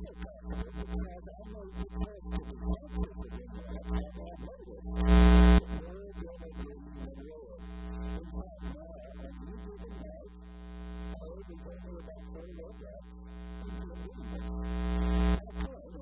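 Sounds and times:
electrical mains hum: 0:00.0 - 0:16.0
loud buzz: 0:05.0 - 0:05.9, 0:09.9 - 0:11.3, 0:13.0 - 0:15.8.

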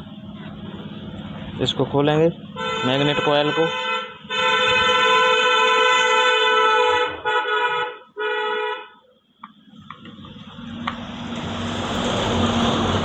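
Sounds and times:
vehicle horn honking: 0:02.6 - 0:09.0.

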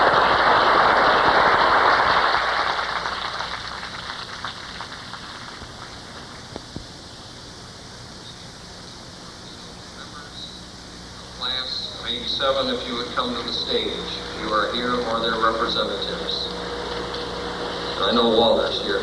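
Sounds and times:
audience applauding: 0:00.0 - 0:06.3.

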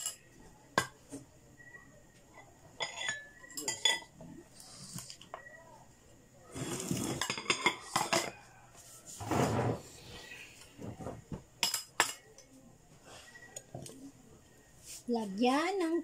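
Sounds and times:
dishes clinking as stacked: 0:02.8 - 0:04.1, 0:07.0 - 0:08.4, 0:11.6 - 0:12.3
glass clinking into bowl: 0:02.8 - 0:04.1.

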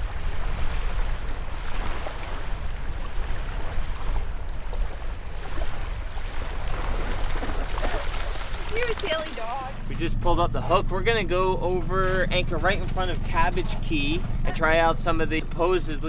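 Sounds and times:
wind on microphone: 0:00.0 - 0:08.7
small waves washing: 0:00.0 - 0:09.9.

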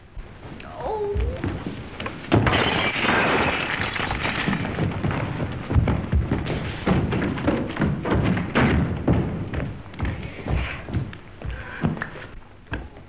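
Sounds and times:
objects clattering and thudding: 0:01.2 - 0:12.2
loud crash: 0:02.3 - 0:04.6.

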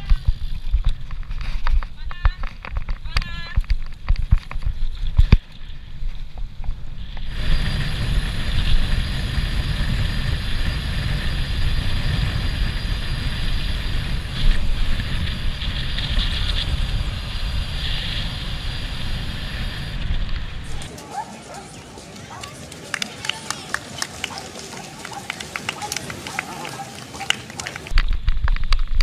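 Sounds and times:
wind rush on microphone: 0:00.0 - 0:21.0
tyre noise on tarmac: 0:00.0 - 0:29.0.

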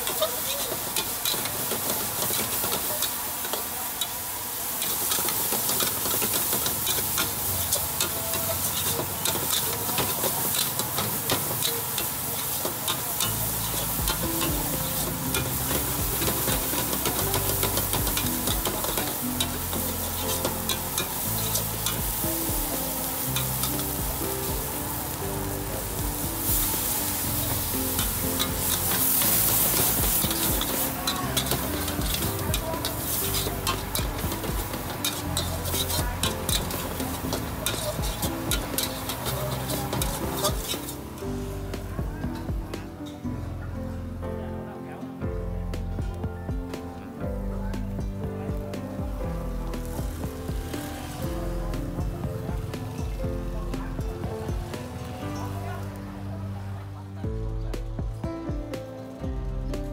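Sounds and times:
meat sizzling in a wok: 0:00.0 - 0:41.9, 0:49.2 - 0:56.0
background music with bass line: 0:13.2 - 0:44.6, 0:45.2 - 0:56.3, 0:57.2 - 0:59.9
metal spatula scraping a wok: 0:25.8 - 0:41.2.

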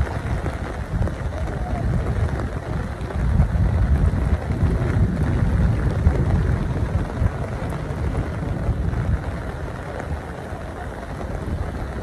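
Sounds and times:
rain falling: 0:00.0 - 0:12.0
wind buffeting microphone: 0:00.0 - 0:12.0.

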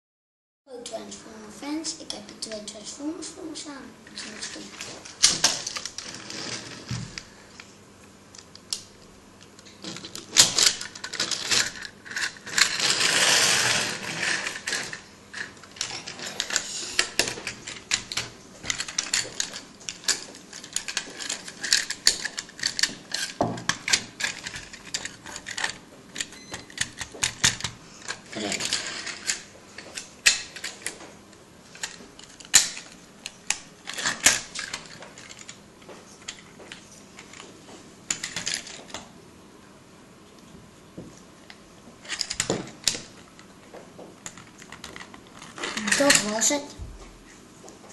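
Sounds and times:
rustling scrape: 0:06.0 - 0:07.2, 0:11.3 - 0:17.2, 0:28.3 - 0:29.4.

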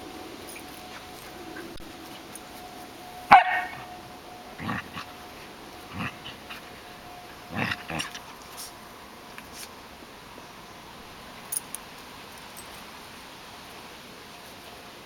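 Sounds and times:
puppies barking: 0:03.3 - 0:04.0.

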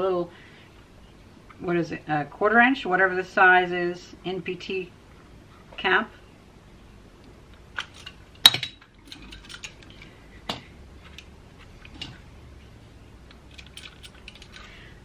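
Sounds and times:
metal pipe fittings clinking: 0:07.8 - 0:12.2, 0:13.3 - 0:14.8.

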